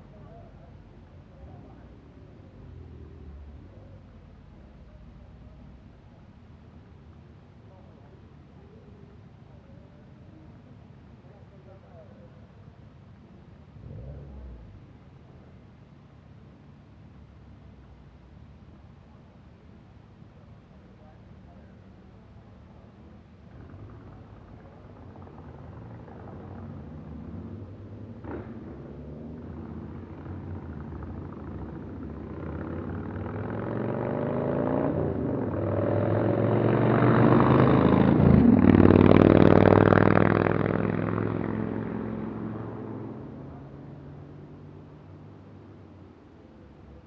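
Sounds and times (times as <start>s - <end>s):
motorcycle driving past: 23.5s - 45.4s
car driving past: 25.4s - 45.3s.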